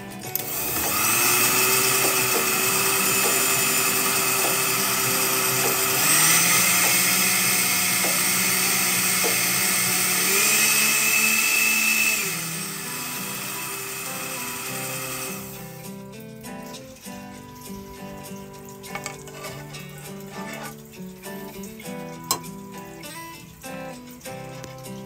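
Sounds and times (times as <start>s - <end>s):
small electric motor running: 0.0s - 15.9s.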